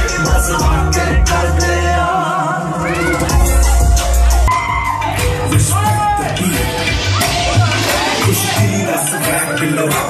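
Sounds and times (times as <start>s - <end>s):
dance music with heavy bass: 0.0s - 10.0s.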